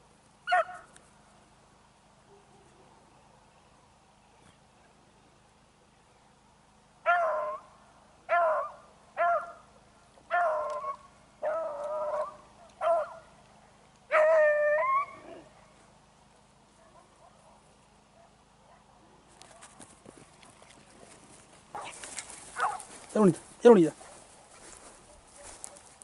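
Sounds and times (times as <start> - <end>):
dog baying: 21.8 - 23.0.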